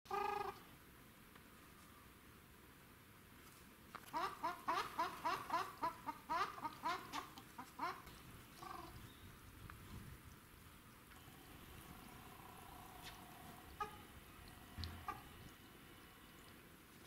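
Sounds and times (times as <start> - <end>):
waterfowl calling: 4.1 - 8.9, 11.8 - 16.5.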